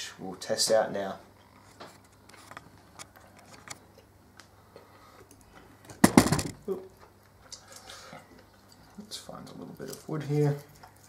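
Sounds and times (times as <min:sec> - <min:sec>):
loud clatter: 0:06.0 - 0:06.6.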